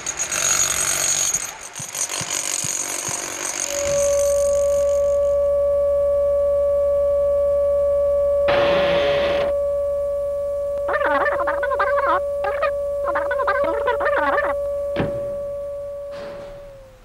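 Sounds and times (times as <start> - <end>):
steady test tone beep: 3.8 - 16.8
knocks: 15.0 - 15.4.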